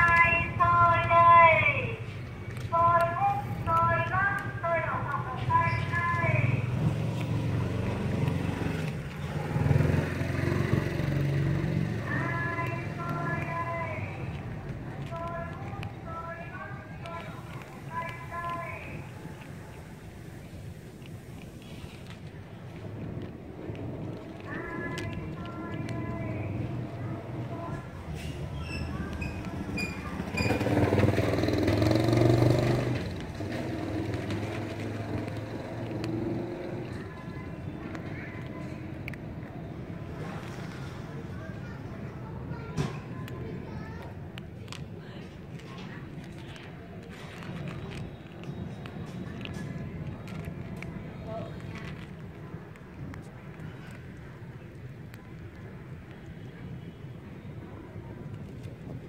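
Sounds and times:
vendor's call from loudspeaker: 0:00.0 - 0:06.8, 0:11.8 - 0:19.2, 0:24.4 - 0:27.9
motorbike engine humming: 0:00.0 - 0:23.0, 0:23.6 - 0:40.0.

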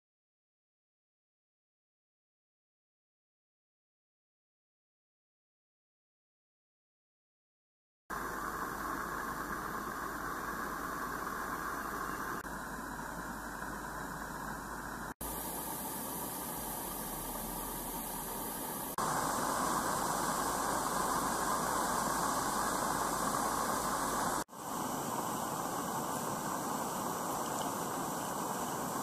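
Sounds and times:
steam locomotive hissing: 0:08.1 - 0:29.0.

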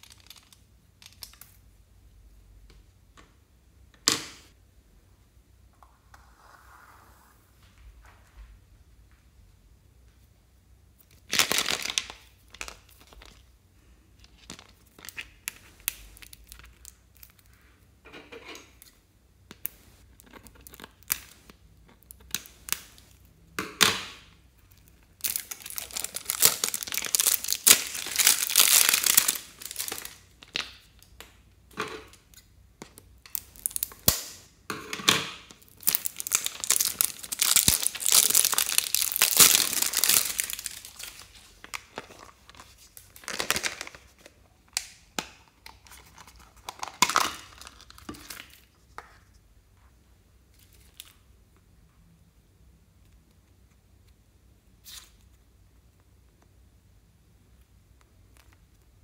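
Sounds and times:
plastic wrapping crinkling: 0:11.2 - 0:13.5, 0:14.2 - 0:17.5, 0:24.7 - 0:30.9, 0:33.3 - 0:34.2, 0:35.5 - 0:44.9.

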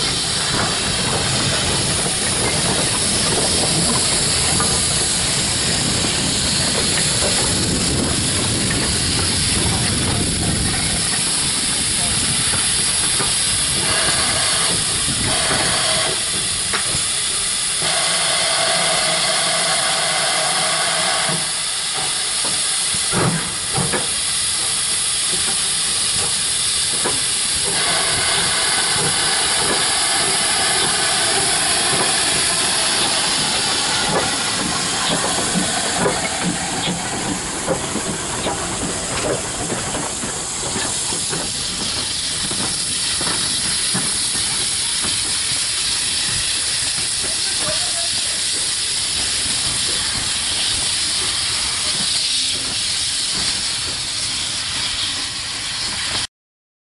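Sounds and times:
steam locomotive hissing steam: 0:00.0 - 0:56.3
locomotive knocks and clanks: 0:21.4 - 0:45.4.

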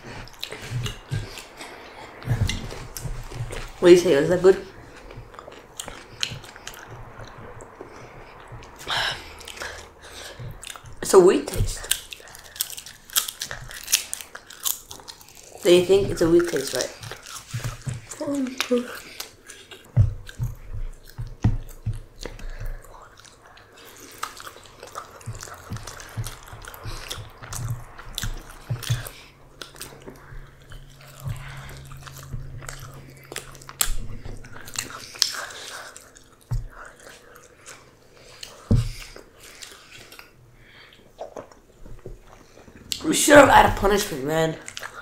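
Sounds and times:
low thumps: 0:00.0 - 0:18.2, 0:19.9 - 0:37.0
chewing and biting: 0:00.0 - 0:43.1, 0:43.9 - 0:45.0.

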